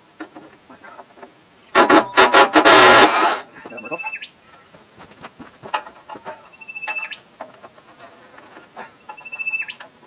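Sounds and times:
high whistle-like animal call: 3.7s - 4.3s.

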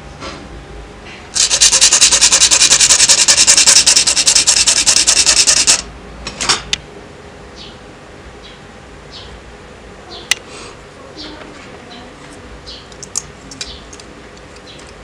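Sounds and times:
rapid sanding scrape: 1.4s - 5.8s.

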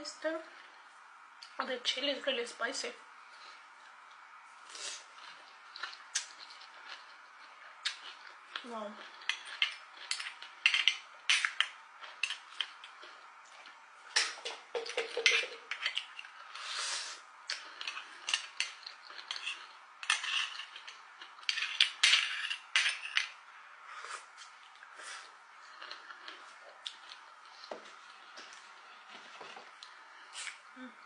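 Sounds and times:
slurping and chewing: 4.6s - 23.0s, 23.9s - 30.6s.

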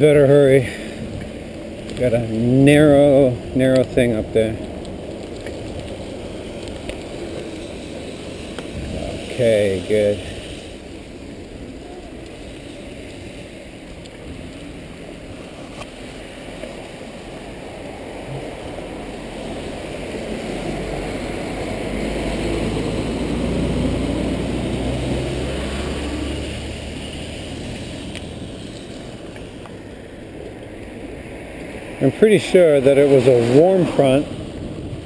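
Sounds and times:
tyres hissing on wet pavement: 0.0s - 35.0s
vehicle passing with tyre spray: 0.3s - 35.0s.

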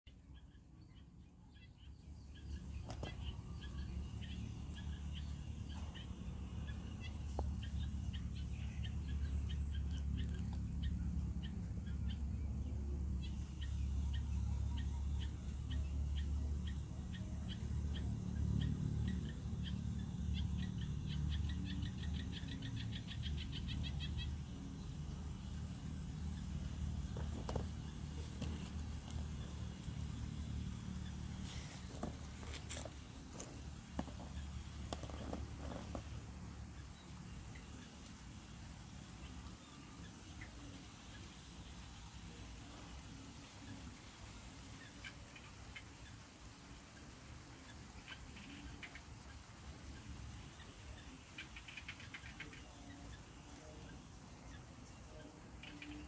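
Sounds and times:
small birds chirping: 0.1s - 56.0s
steady low rumble: 2.0s - 44.8s.

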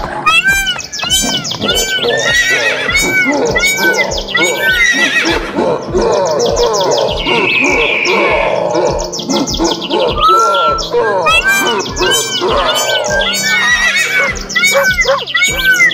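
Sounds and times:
background music with steady beat: 0.0s - 15.9s
birds chirping: 0.0s - 15.9s
horse whinnying: 0.2s - 5.5s, 10.3s - 15.9s.

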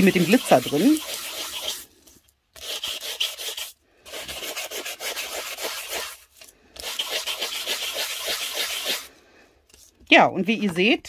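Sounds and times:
sanding block scuffing cardstock: 0.0s - 1.8s, 2.6s - 6.2s, 6.8s - 9.1s.

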